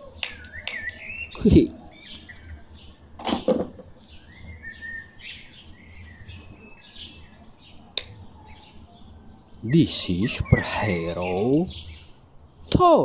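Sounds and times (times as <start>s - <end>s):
small birds chirping: 0.0s - 13.0s
sharp click: 0.2s - 0.9s.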